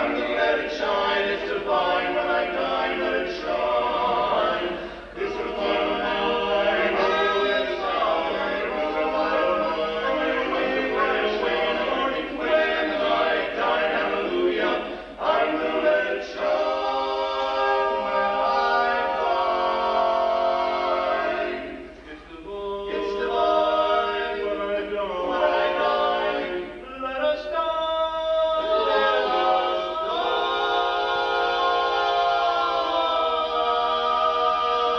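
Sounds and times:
male quartet singing a cappella: 0.0 - 34.9.

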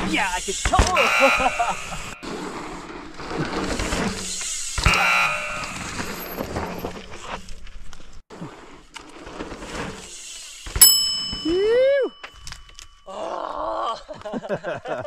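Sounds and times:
bike rolling over dirt trail: 2.2 - 11.4
bell-like ding: 10.8 - 13.1.

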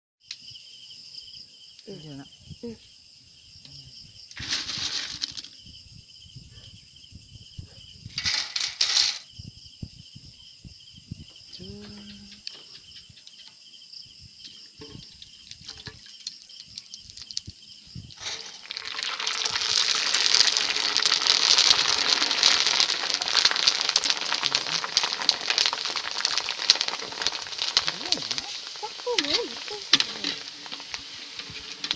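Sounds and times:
insect chirring: 0.2 - 31.9
oil sizzling and crackling: 14.5 - 31.9.

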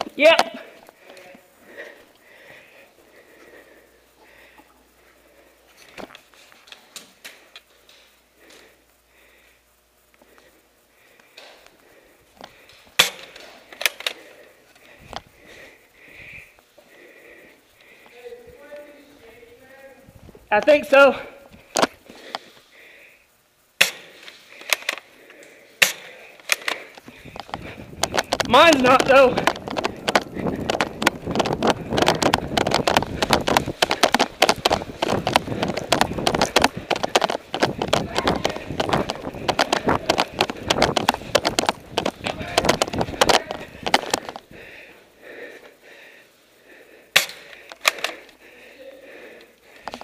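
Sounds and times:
airsoft pistol clicks and shots: 13.0 - 14.2, 23.8 - 25.0, 25.8 - 44.4, 47.1 - 48.3
airsoft gun clicks and snaps: 23.8 - 25.0, 47.1 - 48.4.

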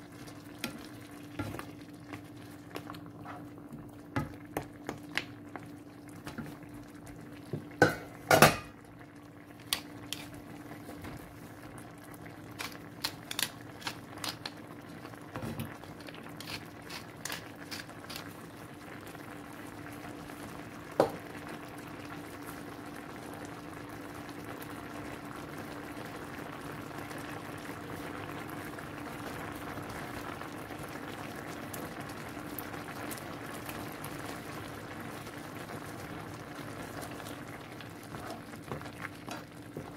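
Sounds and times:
sauce bubbling in a pan: 0.0 - 39.9.

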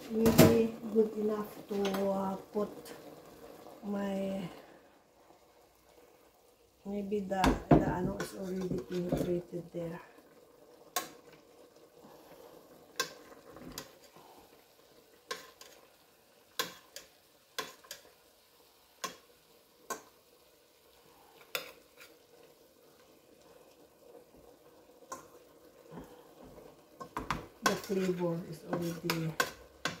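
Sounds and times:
faint frying sizzle: 0.0 - 30.0
metal spoon stirring in a pot: 7.9 - 9.5, 15.1 - 18.2, 21.3 - 22.5, 25.0 - 25.4, 26.0 - 30.0.

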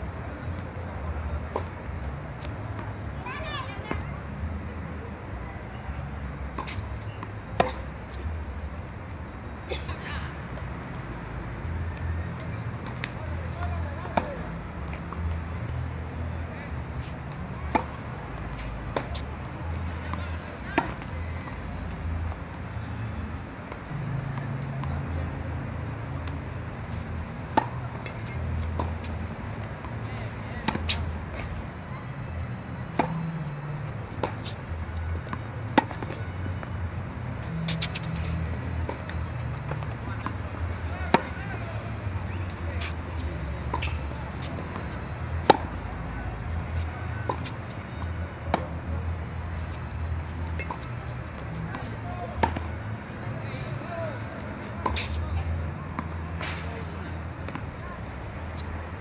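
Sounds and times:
tennis ball bouncing on court: 6.5 - 8.4, 12.4 - 15.4, 17.7 - 22.4, 27.5 - 31.6, 32.9 - 43.0, 43.6 - 45.9, 46.5 - 48.8, 50.4 - 53.1, 54.6 - 55.2.

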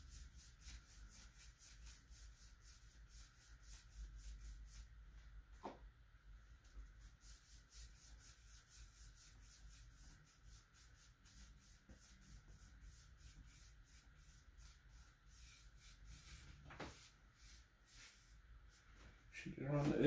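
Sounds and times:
foam brush rubbing on wood: 7.0 - 18.9.

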